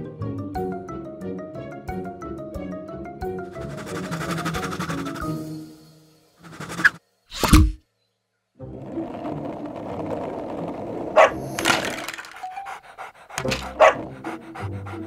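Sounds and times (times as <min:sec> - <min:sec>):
plastic blocks clattering: 0:09.0 - 0:12.6.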